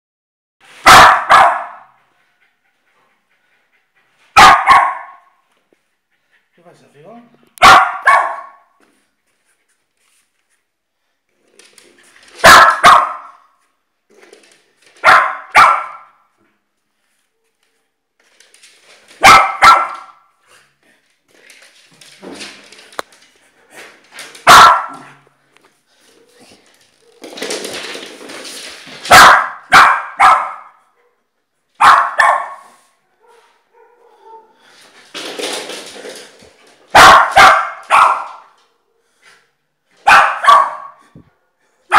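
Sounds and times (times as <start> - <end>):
dog barking: 0.8 - 2.0, 4.4 - 5.4, 7.6 - 8.8, 12.4 - 13.5, 15.0 - 16.3, 19.2 - 20.3, 24.4 - 25.2, 29.1 - 31.2, 31.8 - 34.6, 36.9 - 39.0, 40.0 - 41.1.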